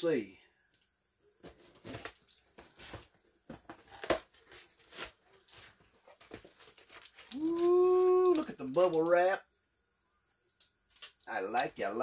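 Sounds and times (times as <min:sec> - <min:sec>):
cardboard scraping and rustling: 0:01.4 - 0:07.7.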